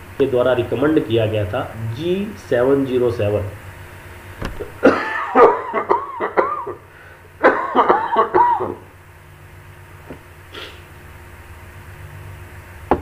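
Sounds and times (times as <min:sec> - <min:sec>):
man coughing: 0:04.8 - 0:06.8, 0:07.4 - 0:08.9.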